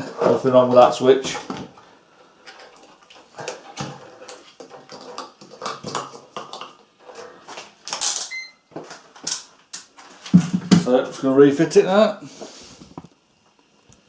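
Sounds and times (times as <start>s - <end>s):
multimeter beep: 8.3s - 8.6s.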